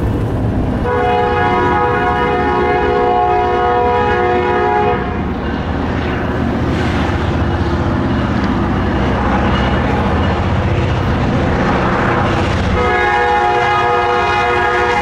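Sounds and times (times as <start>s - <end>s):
locomotive rumble approaching: 0.0s - 15.0s
locomotive horn chord: 0.8s - 5.2s, 12.7s - 15.0s.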